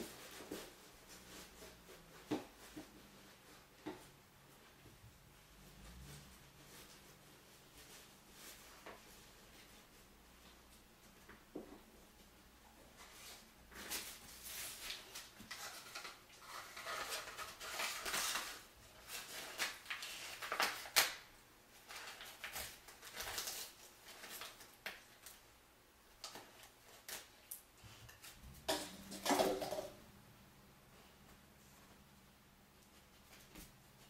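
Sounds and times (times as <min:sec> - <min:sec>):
paper and wrappers rustling: 0:13.0 - 0:25.5, 0:26.1 - 0:29.9
cups and litter knocking: 0:28.4 - 0:30.0.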